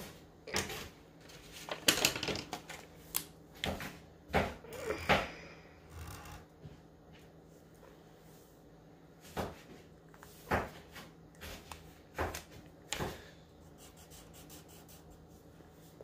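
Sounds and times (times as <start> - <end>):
marker strokes on paper: 13.7 - 16.0.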